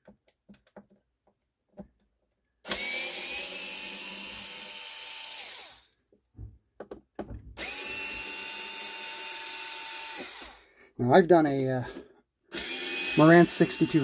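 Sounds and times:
electric screwdriver motor whine: 0:02.7 - 0:06.0, 0:07.6 - 0:10.6, 0:12.5 - 0:14.0.

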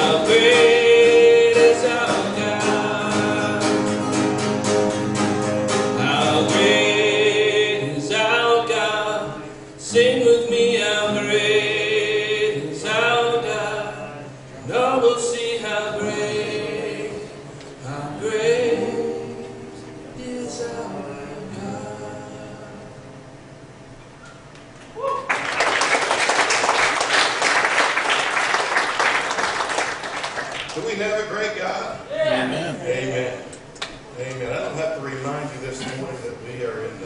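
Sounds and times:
man singing with vibrato: 0:00.0 - 0:04.6, 0:05.8 - 0:23.2, 0:32.1 - 0:33.5
acoustic guitar: 0:00.0 - 0:25.0, 0:25.9 - 0:37.0.

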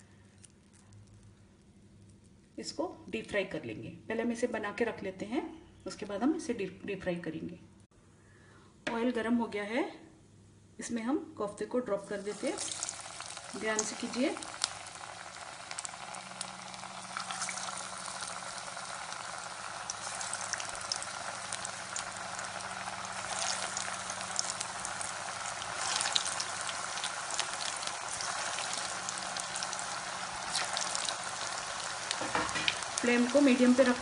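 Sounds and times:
food deep-frying in sizzling oil: 0:12.0 - 0:34.0.

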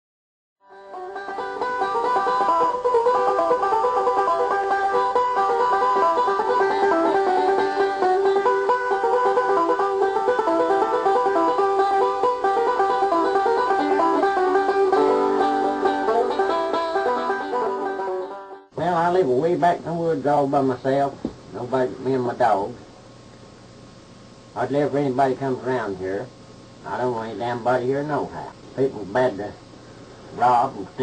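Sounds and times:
bluegrass banjo music: 0:00.6 - 0:20.9.

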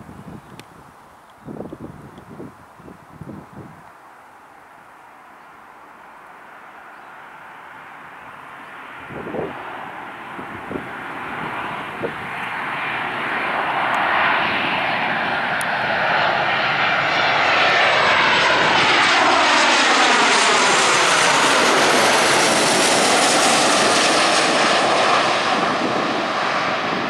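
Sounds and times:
jet airliner passing overhead: 0:05.7 - 0:27.0.

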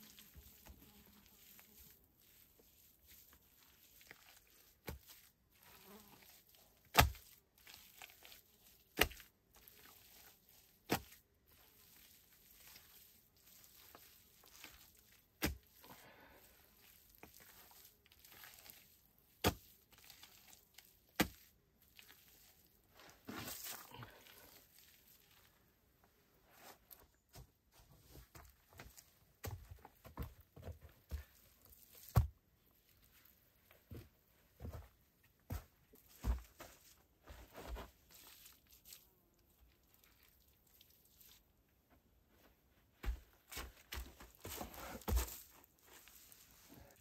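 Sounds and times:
faint scraping and rustling: 0:44.0 - 0:47.0.

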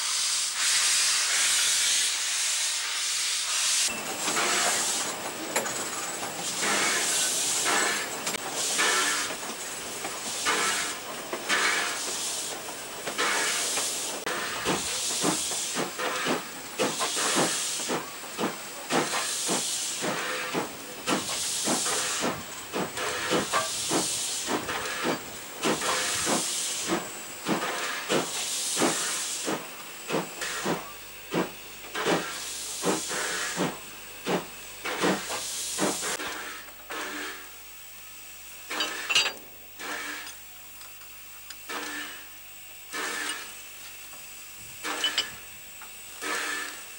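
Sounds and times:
steam locomotive hissing: 0:00.0 - 0:46.9.

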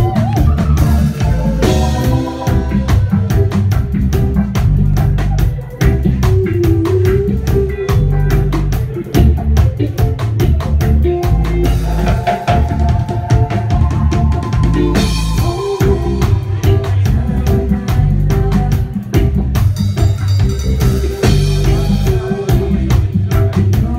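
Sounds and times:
bass line: 0:00.0 - 0:23.9
reggae band playing: 0:00.0 - 0:23.9.

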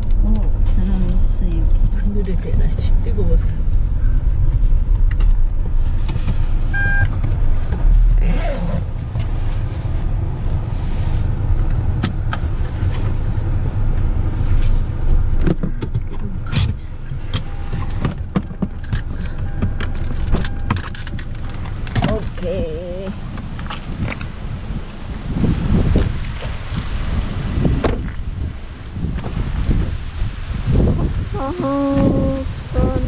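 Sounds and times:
tyre and engine rumble: 0:00.0 - 0:33.0
short beep: 0:06.7 - 0:07.1.

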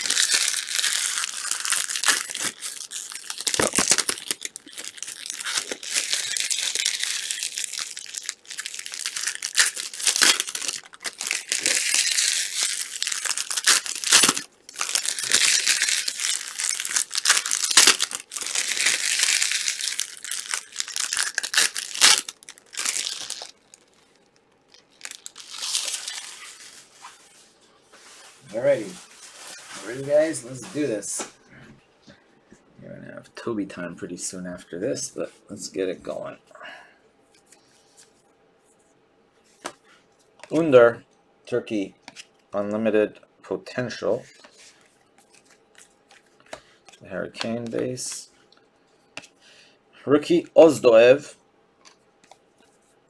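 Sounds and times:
plastic wrapping tearing and crumpling: 0:00.0 - 0:27.3.

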